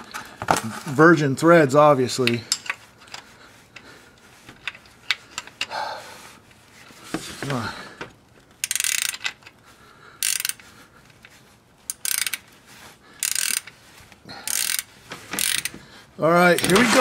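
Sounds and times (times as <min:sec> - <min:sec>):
ratchet wrench clicking: 0:08.6 - 0:09.6, 0:10.2 - 0:11.3, 0:11.9 - 0:12.4, 0:13.2 - 0:13.8, 0:14.5 - 0:15.7.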